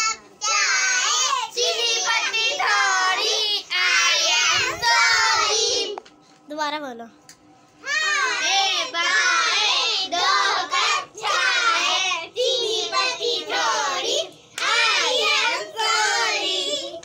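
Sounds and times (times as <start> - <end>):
children singing: 7.9 - 17.0.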